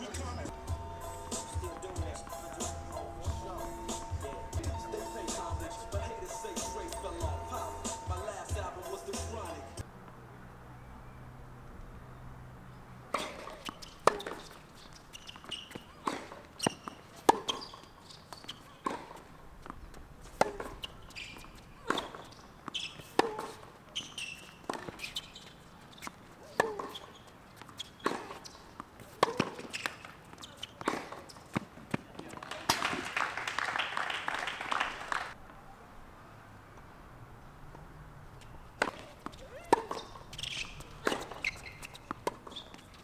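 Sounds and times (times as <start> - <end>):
racket striking tennis ball: 0.5 - 9.7, 13.1 - 14.6, 15.2 - 17.8, 18.8 - 25.2, 26.0 - 27.1, 27.8 - 32.0, 38.8 - 42.8
tennis ball bouncing: 0.5 - 9.8, 13.1 - 25.2, 25.9 - 32.4, 38.8 - 43.0.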